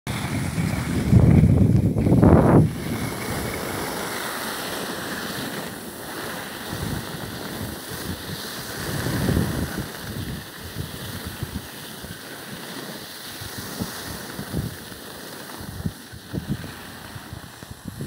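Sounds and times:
low wind buffeting: 0:00.1 - 0:05.1, 0:06.6 - 0:11.7, 0:15.6 - 0:18.0
wind rushing over microphone: 0:00.1 - 0:12.3, 0:13.3 - 0:18.0
skis sliding over snow: 0:00.1 - 0:18.0.

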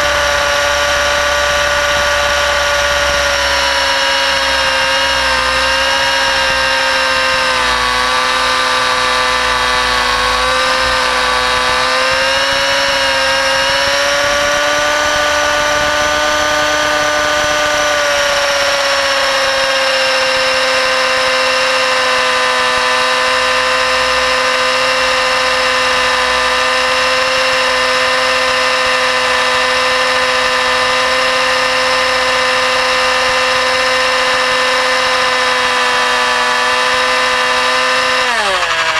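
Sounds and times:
model helicopter engine whine: 0:00.0 - 0:38.9.

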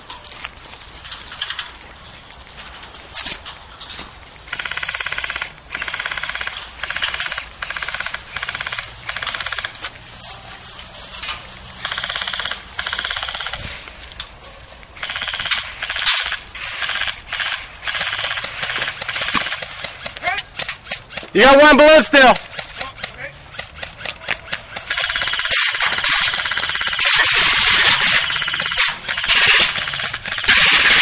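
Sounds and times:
airsoft rifles firing bursts: 0:04.5 - 0:09.8, 0:11.8 - 0:13.6, 0:15.0 - 0:31.0.

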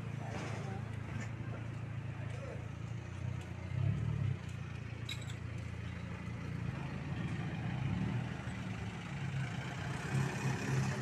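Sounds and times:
faint clink: 0:05.0 - 0:05.4.

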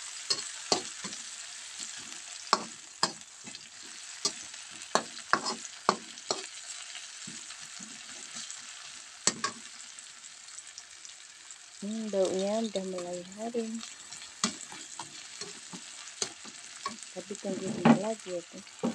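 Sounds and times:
metal spatula scraping wok: 0:00.0 - 0:09.7, 0:13.8 - 0:18.9
food sizzling in hot oil: 0:00.0 - 0:18.9.

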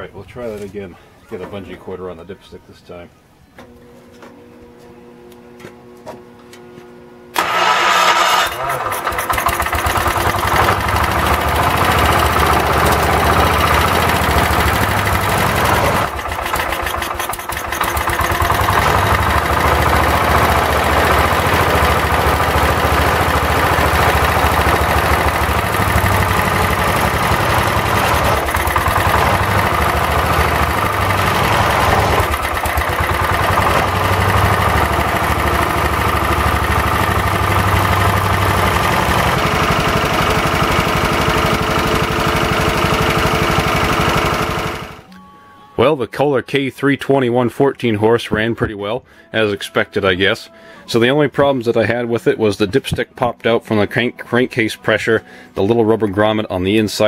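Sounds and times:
single-cylinder engine running: 0:07.3 - 0:45.1.

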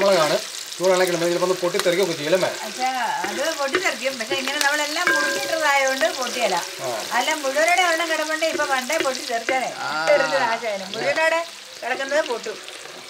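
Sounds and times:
chillies sizzling in hot oil: 0:00.0 - 0:13.0
wooden spatula stirring: 0:02.4 - 0:09.8.

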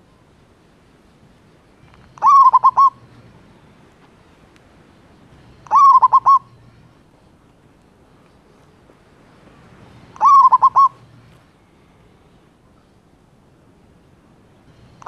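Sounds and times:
dove cooing: 0:02.2 - 0:03.0, 0:05.6 - 0:06.5, 0:10.2 - 0:11.0.

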